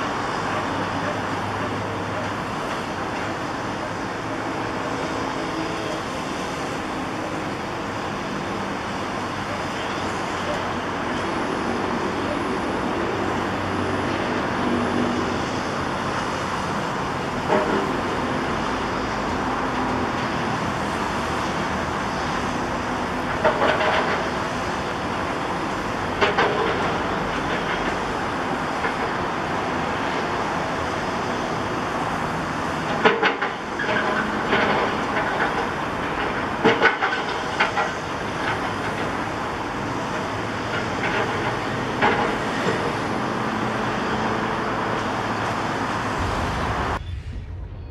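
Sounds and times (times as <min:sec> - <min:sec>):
excavator engine running: 0:00.0 - 0:47.9.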